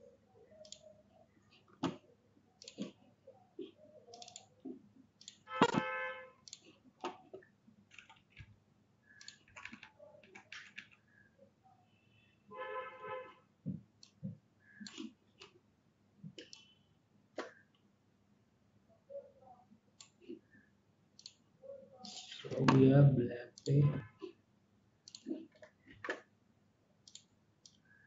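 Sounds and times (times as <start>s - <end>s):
mouse and keyboard clicking: 0.5s - 0.9s, 2.6s - 3.0s, 4.1s - 5.8s, 6.5s - 11.1s, 14.0s - 15.6s, 21.2s - 21.4s, 25.0s - 26.2s, 27.1s - 27.8s.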